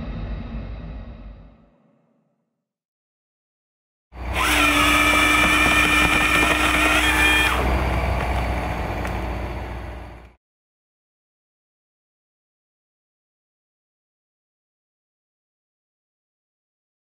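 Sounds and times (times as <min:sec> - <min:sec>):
power tool motor running: 0:04.2 - 0:07.7.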